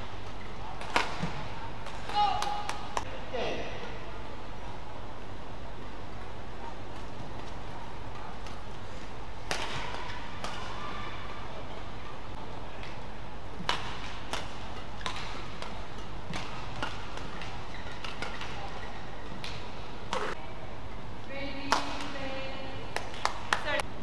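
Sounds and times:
racket hitting shuttlecock: 0:00.7 - 0:03.1, 0:09.4 - 0:10.9, 0:13.6 - 0:18.8
shoes squeaking on court: 0:16.1 - 0:19.4.

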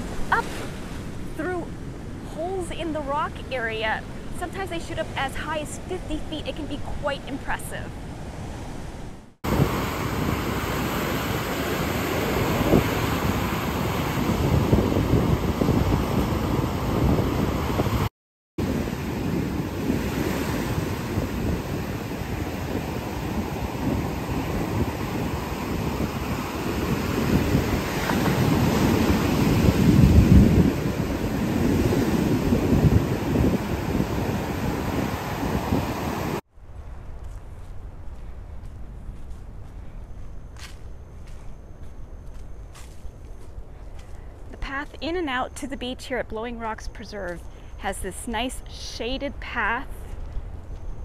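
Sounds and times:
ocean surf on rocks: 0:00.0 - 0:36.4
wind buffeting microphone: 0:00.0 - 0:45.6.

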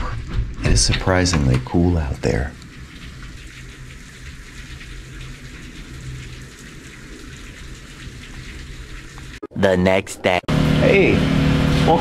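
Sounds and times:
steady pouring rain: 0:01.7 - 0:09.4.

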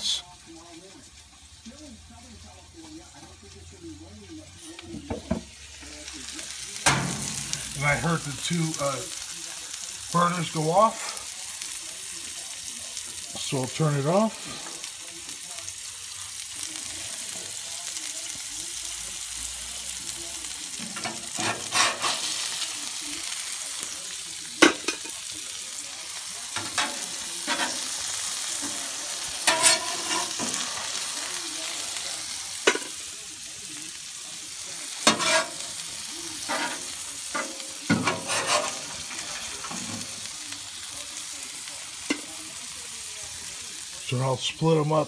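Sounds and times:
food sizzling on griddle: 0:00.0 - 0:45.0
metal spatula scraping griddle: 0:20.8 - 0:22.5, 0:26.6 - 0:27.9, 0:29.4 - 0:30.8, 0:35.0 - 0:35.6, 0:36.4 - 0:40.1.

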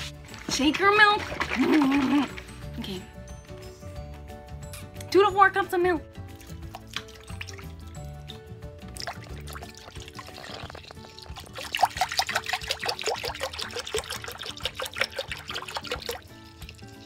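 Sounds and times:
milk pouring and glugging: 0:00.3 - 0:02.8, 0:06.3 - 0:17.0.

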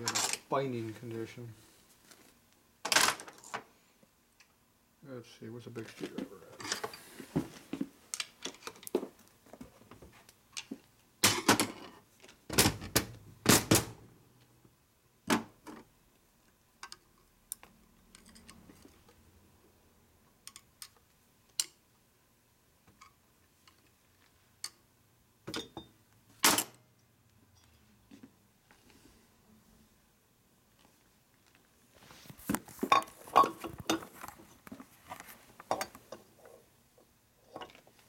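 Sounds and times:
metal tools clanking on workbench: 0:32.9 - 0:34.2.

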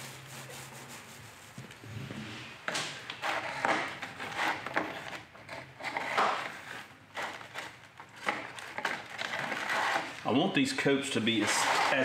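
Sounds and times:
paint roller rubbing strokes: 0:00.0 - 0:02.6, 0:11.1 - 0:12.0.

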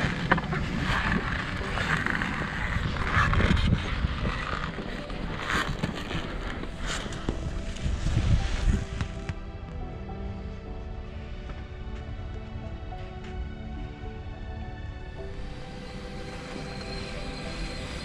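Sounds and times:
wind buffeting microphone: 0:00.0 - 0:10.0.

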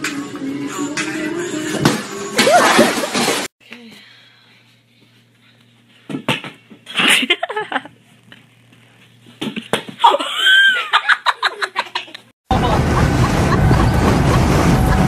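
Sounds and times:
girl laughing: 0:06.9 - 0:08.0, 0:10.0 - 0:15.0.

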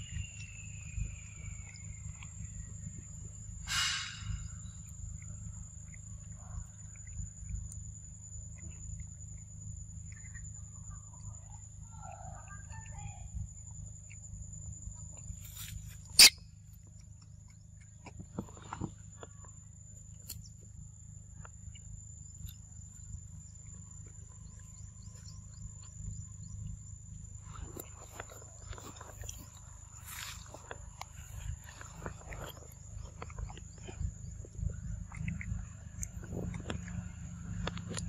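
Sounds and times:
sharp crack: 0:03.7 - 0:04.4.

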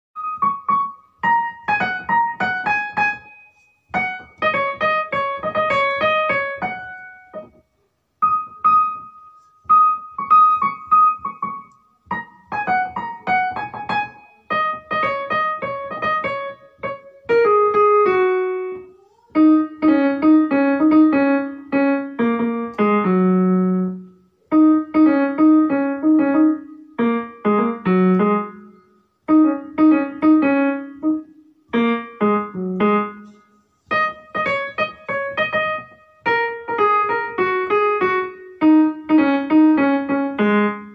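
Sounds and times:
light piano melody: 0:00.2 - 0:40.9.

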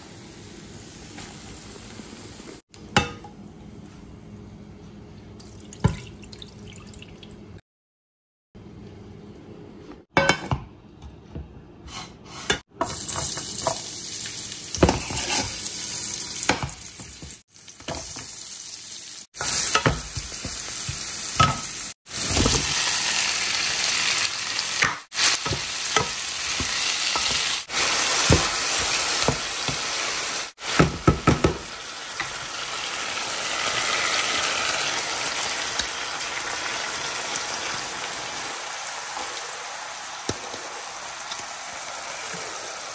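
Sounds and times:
vegetables sizzling in oil: 0:00.0 - 0:02.6, 0:12.8 - 0:42.9.

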